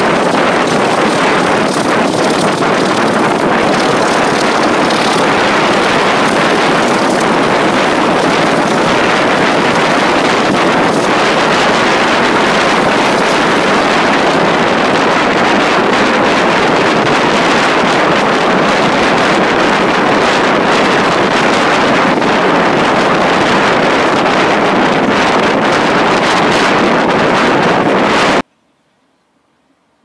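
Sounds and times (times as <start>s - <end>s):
train running noise: 0.0s - 28.5s
wind rushing on microphone: 0.0s - 28.5s.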